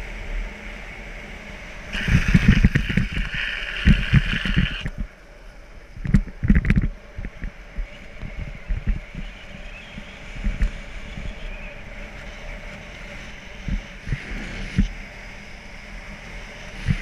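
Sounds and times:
wind buffeting microphone: 0:01.9 - 0:05.2, 0:05.8 - 0:17.0
steady high screech: 0:02.0 - 0:04.9.

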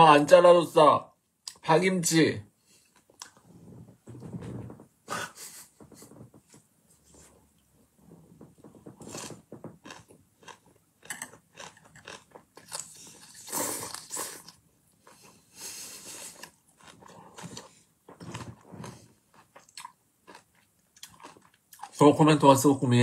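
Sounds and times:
wet crunchy chewing: 0:08.9 - 0:15.4, 0:16.0 - 0:22.0.

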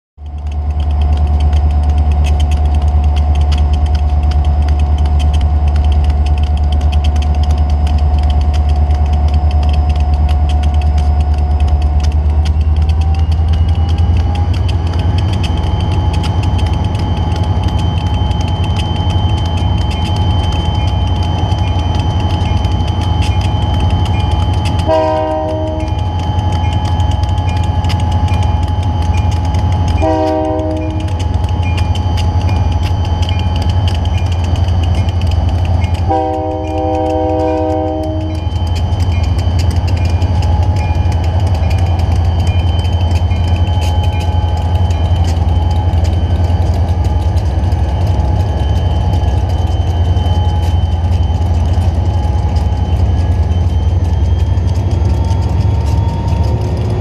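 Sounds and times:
diesel locomotive engines rumbling: 0:00.2 - 0:57.0
whine rising in pitch: 0:00.2 - 0:57.0
train air horn blast: 0:24.9 - 0:25.9, 0:30.0 - 0:31.1, 0:36.1 - 0:38.3.

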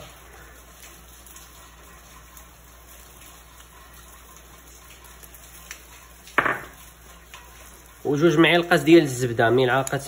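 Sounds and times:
kitchenware clattering: 0:06.4 - 0:06.8.

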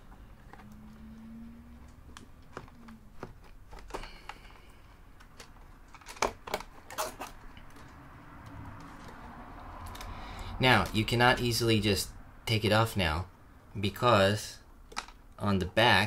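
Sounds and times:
hands handling cables and metal: 0:00.0 - 0:11.2, 0:14.9 - 0:15.4.

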